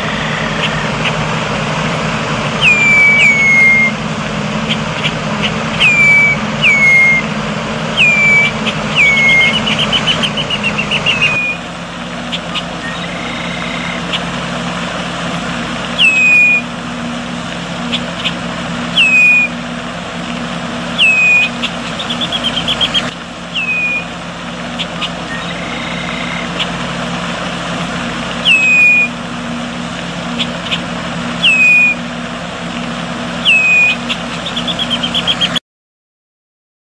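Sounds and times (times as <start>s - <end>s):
steady low hum: 0.0s - 35.6s
bird chattering notes: 2.6s - 3.9s, 4.6s - 7.3s, 7.9s - 11.6s, 12.3s - 14.3s, 16.0s - 16.6s, 17.8s - 19.5s, 21.0s - 24.1s, 24.7s - 26.8s, 28.4s - 29.1s, 30.3s - 32.0s, 33.4s - 35.6s
blackbird whistled calls: 2.6s - 4.0s, 4.6s - 7.3s, 7.9s - 11.7s, 12.3s - 14.3s, 16.0s - 16.8s, 17.8s - 19.6s, 20.9s - 26.8s, 28.4s - 29.2s, 30.3s - 32.1s, 33.4s - 35.6s.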